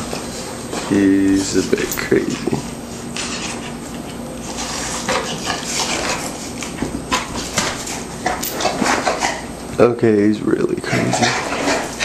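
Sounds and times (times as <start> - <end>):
dog scratching on fabric couch: 3.0 - 9.4.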